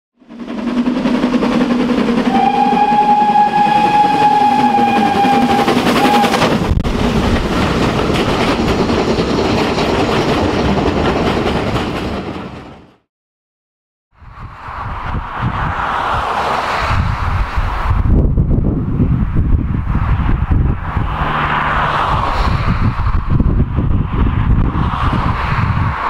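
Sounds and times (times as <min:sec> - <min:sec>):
rush of steam and exhaust: 0:00.2 - 0:10.7, 0:14.2 - 0:26.0
steam locomotive whistle: 0:02.1 - 0:06.6.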